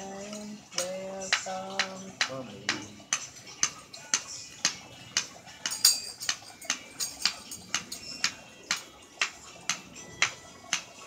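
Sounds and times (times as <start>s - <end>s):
stick tapping wooden toy: 0.8s - 10.9s
bright jingling rattle: 5.7s - 8.3s.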